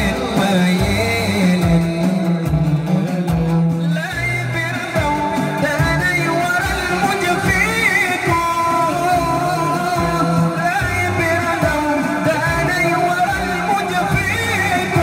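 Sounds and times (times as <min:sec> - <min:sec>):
men singing through sound system: 0:00.0 - 0:15.0.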